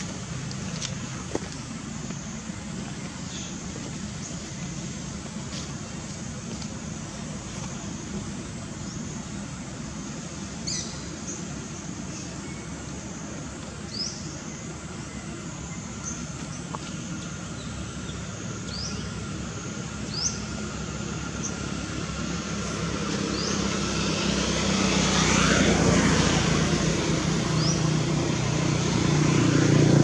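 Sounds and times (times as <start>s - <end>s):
motor vehicle passing: 17.4s - 30.0s.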